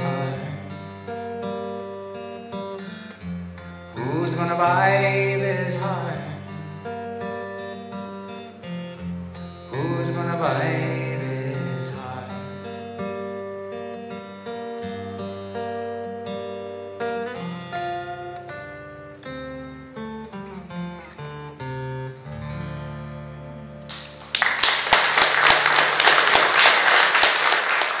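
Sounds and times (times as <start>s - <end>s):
acoustic guitar playing: 0.0s - 24.4s
audience applause: 23.9s - 28.0s.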